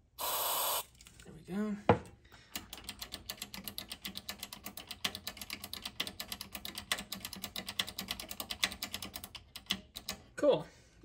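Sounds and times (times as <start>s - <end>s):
push-button switches clicking rapidly: 2.6s - 10.2s.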